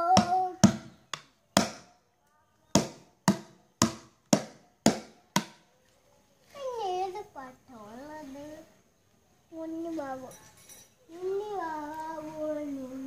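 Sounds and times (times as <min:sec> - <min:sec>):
stick hitting plastic bucket: 0:00.2 - 0:01.9, 0:02.8 - 0:05.6.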